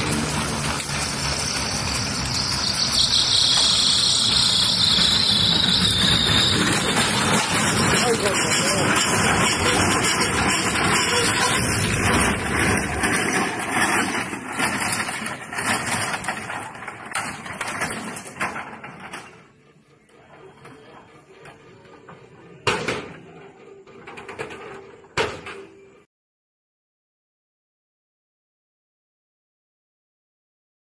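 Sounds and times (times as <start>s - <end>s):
helicopter engine noise: 0.0s - 16.4s.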